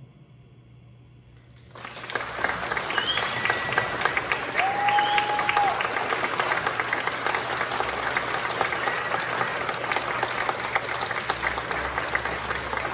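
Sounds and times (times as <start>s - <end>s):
audience applauding: 1.6s - 12.9s
whistle: 2.7s - 5.8s.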